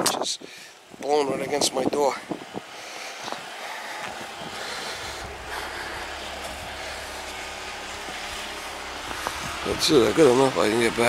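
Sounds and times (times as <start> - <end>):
storm wind hissing: 0.4 - 11.0
wind rumble on microphone: 4.1 - 10.1.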